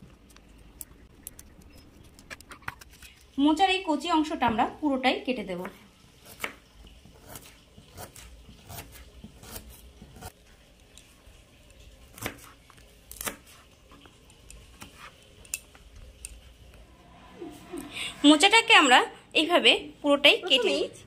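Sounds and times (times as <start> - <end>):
knife cutting on a cutting board: 6.2 - 10.4, 12.1 - 15.2.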